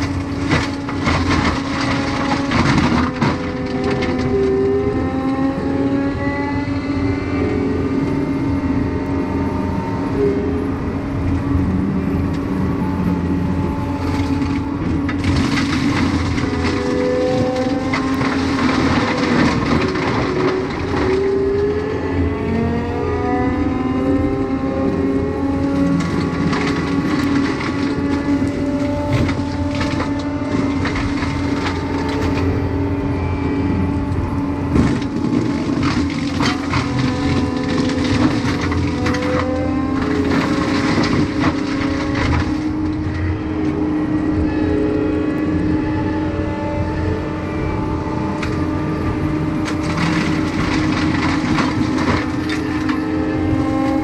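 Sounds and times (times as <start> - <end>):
wood cracking and snapping: 0.0 - 5.5, 14.0 - 21.9, 24.3 - 32.5, 34.1 - 43.2, 49.6 - 53.0
forestry mulcher drone: 0.0 - 54.0.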